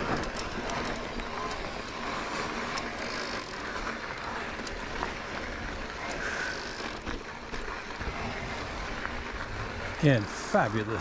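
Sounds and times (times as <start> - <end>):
small clicks and rattles: 0.0 - 11.0
bike tyres hissing on dirt: 1.6 - 11.0.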